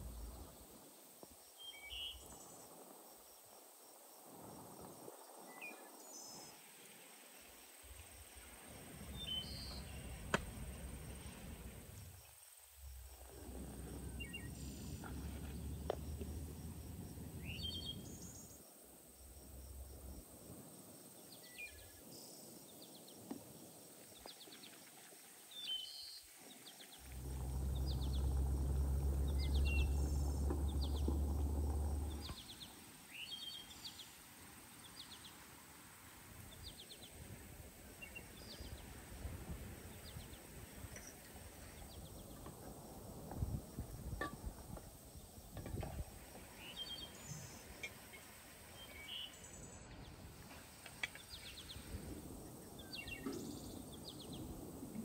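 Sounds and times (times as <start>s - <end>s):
low rumble: 0.0s - 0.6s, 12.8s - 18.4s, 27.0s - 32.6s
small birds chirping: 8.4s - 20.2s, 25.5s - 35.4s, 46.5s - 54.6s.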